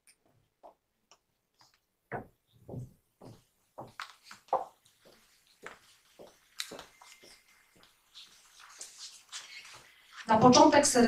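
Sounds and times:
footsteps on hard floor: 1.6 - 10.6.

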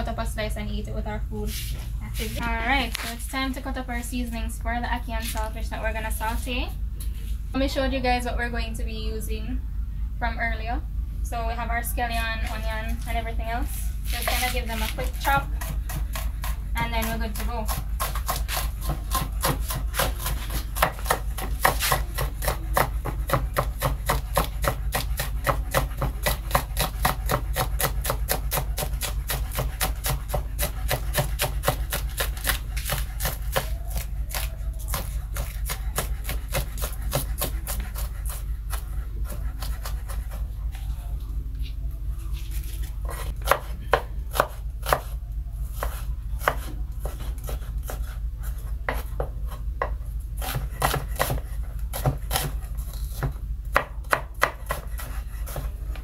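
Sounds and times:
steady low hum: 0.0 - 56.0
knife chopping on cutting board: 14.1 - 40.4, 43.0 - 45.1, 45.8 - 55.8.

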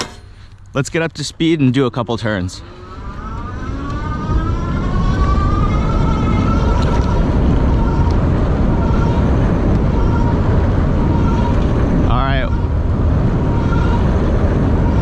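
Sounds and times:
low rumble of wind and road: 0.0 - 15.0
electric motor whining: 2.6 - 12.9.

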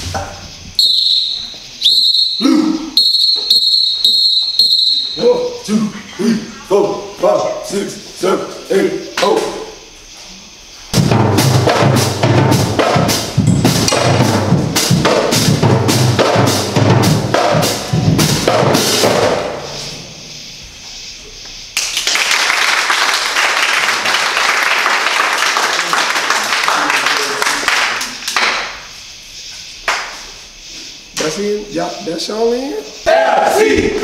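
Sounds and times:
marching band drums: 11.0 - 19.7
crowd clapping and cheering: 21.7 - 28.8.

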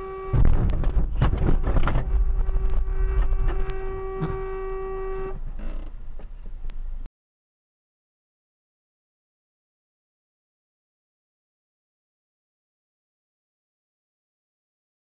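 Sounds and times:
vehicle horn held: 0.0 - 5.7
loud rumbling: 0.0 - 7.0
knocks: 0.4 - 4.5.

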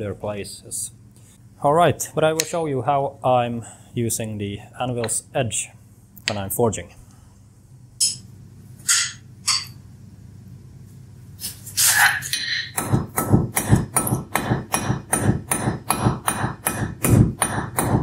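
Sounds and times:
hammer striking hot metal on anvil: 12.7 - 18.0.

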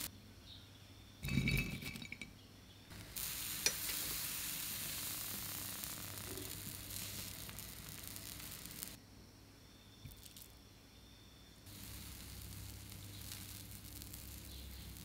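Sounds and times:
batter sizzling in hot pan: 2.9 - 9.0, 10.1 - 10.5, 11.7 - 15.0.

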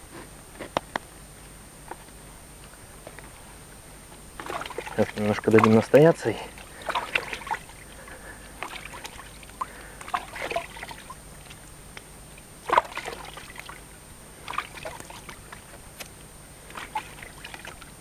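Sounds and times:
water sloshing and splashing: 4.4 - 11.7, 12.4 - 15.8, 16.6 - 18.0.

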